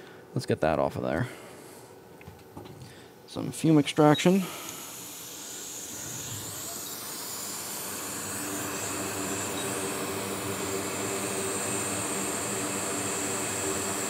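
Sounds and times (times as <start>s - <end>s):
fan blowing: 2.8s - 14.0s.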